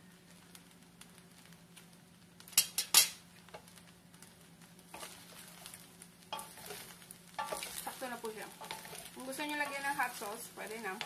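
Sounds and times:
utensils scraping steel pan: 6.4 - 8.0, 8.6 - 9.9.

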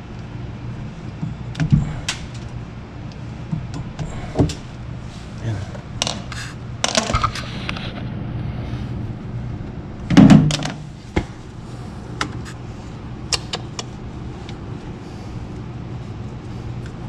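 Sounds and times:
steady low hum: 0.0 - 17.0
clicks and knocks of handling parts: 6.0 - 7.4.

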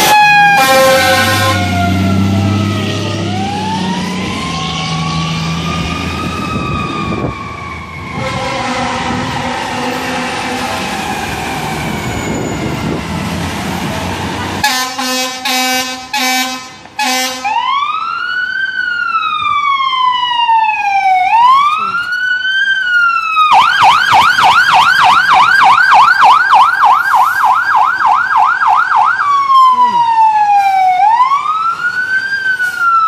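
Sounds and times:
air horn blasts: 0.0 - 1.8, 8.1 - 10.8, 14.6 - 17.6
electronic siren wailing and yelping: 0.0 - 10.2, 17.5 - 33.0
fire truck engine rumble: 0.0 - 33.0.

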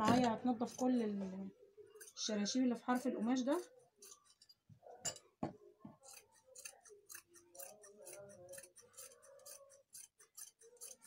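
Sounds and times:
scissors cutting heavy fabric: 2.9 - 4.5, 6.0 - 11.0
sharp scissor clicks: 6.1 - 11.0.

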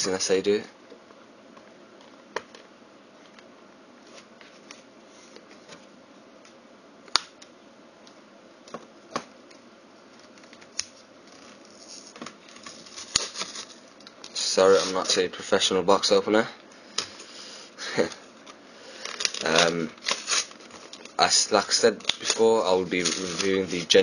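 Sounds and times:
card packaging crackling and tearing: 10.2 - 15.2, 18.9 - 24.0.

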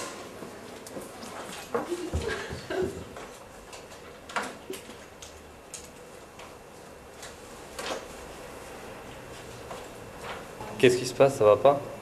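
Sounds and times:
pens and desks clicking: 3.2 - 6.6.

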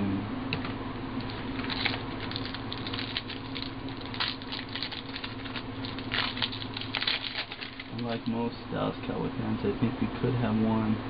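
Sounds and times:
cards rustling: 1.2 - 8.4
foil wrappers crinkling: 1.2 - 8.4.

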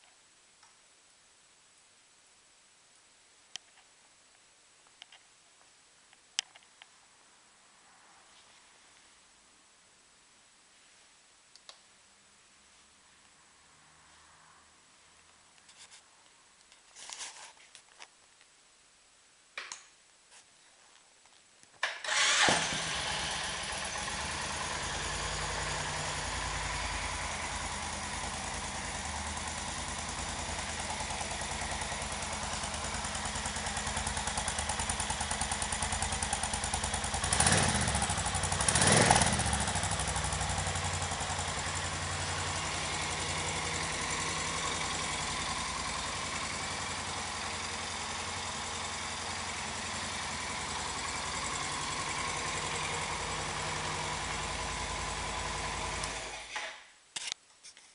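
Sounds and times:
motorcycle engine starting and idling: 21.8 - 56.9
engine revving: 22.1 - 56.6.

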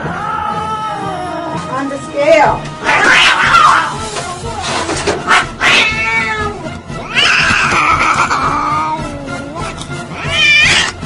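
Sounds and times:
cat yowling: 2.8 - 4.0, 5.3 - 11.0.

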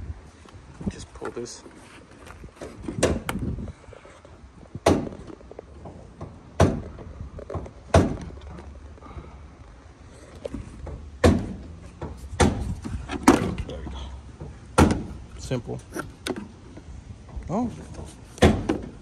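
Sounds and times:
clunks and knocks of truck parts: 2.6 - 3.6, 4.8 - 9.4, 10.3 - 15.3, 16.0 - 19.0.

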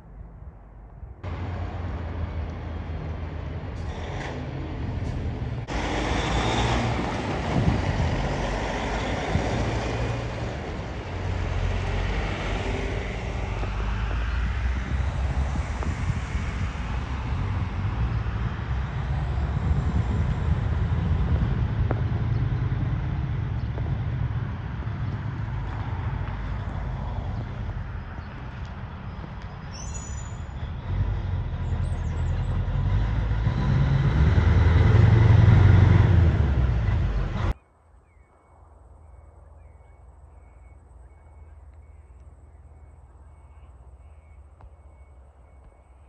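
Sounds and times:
outdoor noise: 0.0 - 46.0
diesel engines idling: 1.2 - 13.9.

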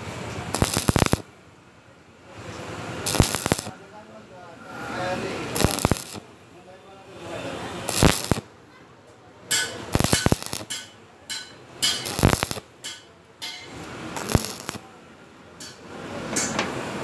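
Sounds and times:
welding arc crackling: 0.3 - 1.3, 2.9 - 3.9, 5.1 - 6.3, 7.7 - 8.6, 9.5 - 14.9.

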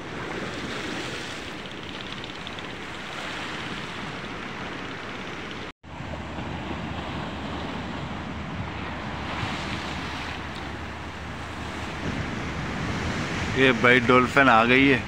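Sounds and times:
wind rumbling on microphone: 0.0 - 15.0
waves washing on rocky shore: 6.4 - 15.0.

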